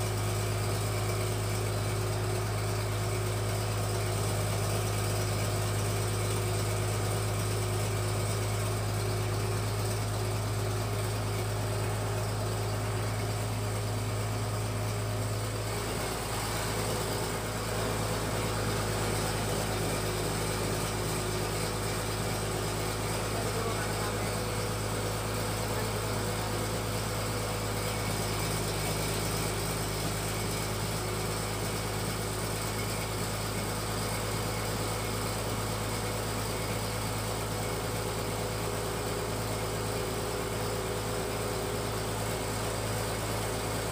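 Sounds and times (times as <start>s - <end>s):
feed pellet machine humming: 0.0s - 43.9s.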